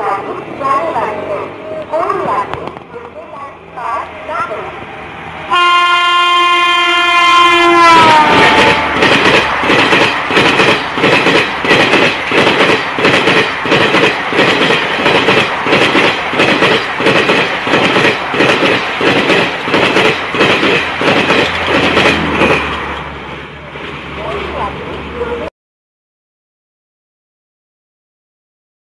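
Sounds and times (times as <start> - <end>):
train wheels clattering over rail joints: 8.3 - 23.2.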